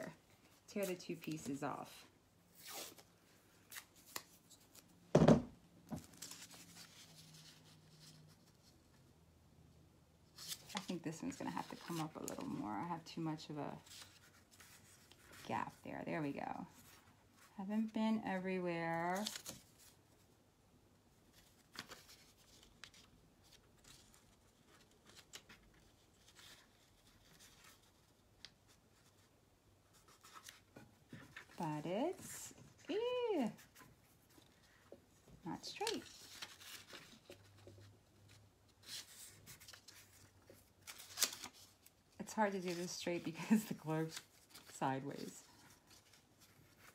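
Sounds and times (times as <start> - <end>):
paper rustling: 6.0 - 9.1, 10.3 - 15.4, 19.0 - 20.3, 21.2 - 34.9, 35.6 - 46.9.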